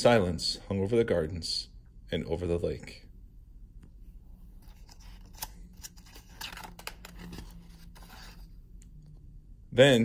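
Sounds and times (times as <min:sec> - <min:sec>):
book pages turning: 0:04.5 - 0:08.8.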